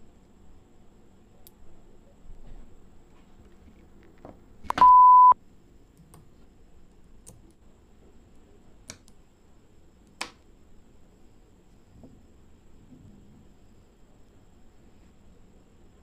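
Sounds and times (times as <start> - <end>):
short electronic beep: 4.7 - 5.4.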